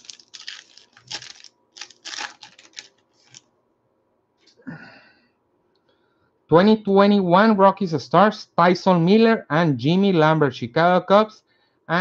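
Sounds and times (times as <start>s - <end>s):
paper wrapper crinkling and tearing: 0.0s - 3.4s.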